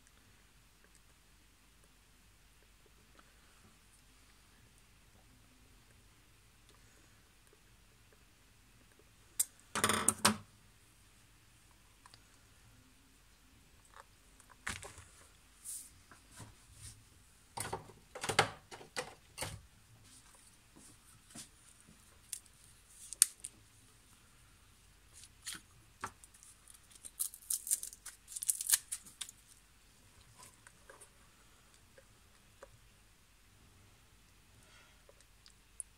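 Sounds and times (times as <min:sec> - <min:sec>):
crisp crackling: 0:22.2 - 0:23.6, 0:25.1 - 0:29.7.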